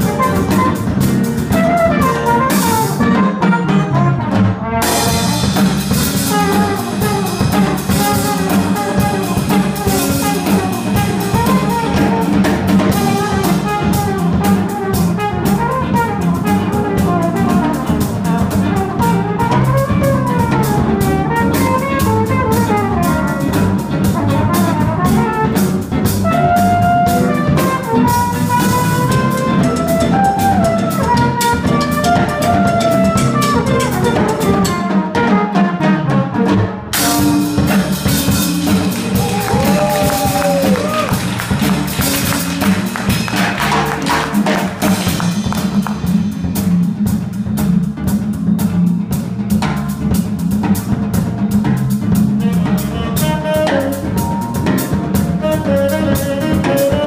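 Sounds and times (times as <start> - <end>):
flugelhorn solo: 0.0 - 5.4, 6.2 - 18.1, 18.7 - 36.6, 39.1 - 41.4, 52.4 - 54.7, 55.4 - 57.0
jazz-funk band playing: 0.0 - 57.0.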